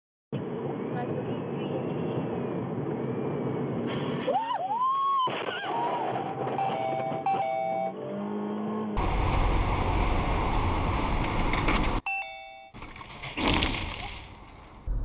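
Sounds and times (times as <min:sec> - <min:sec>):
road and engine rumble: 0:00.3 - 0:12.1, 0:14.2 - 0:15.0
vehicle crash: 0:12.8 - 0:15.0.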